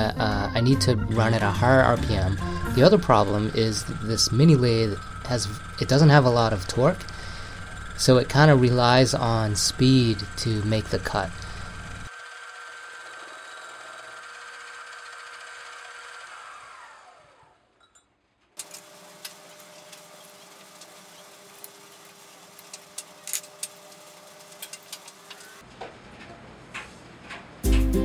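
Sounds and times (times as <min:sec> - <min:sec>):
lathe motor whining: 0:01.1 - 0:17.7, 0:18.6 - 0:25.6
hole saw cutting steel tube: 0:02.4 - 0:17.5.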